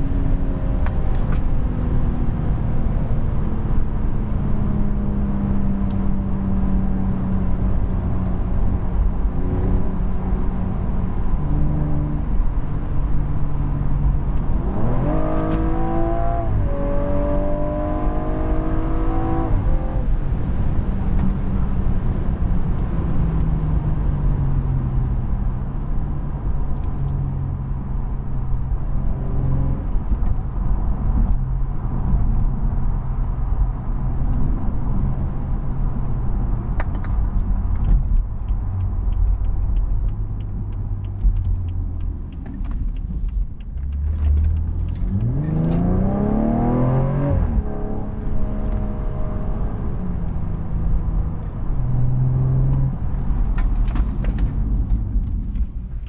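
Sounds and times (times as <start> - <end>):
road and tyre noise: 0.0 - 56.0
car engine revving hard: 14.5 - 20.0, 44.2 - 50.0
light rapid ticks: 36.8 - 45.5.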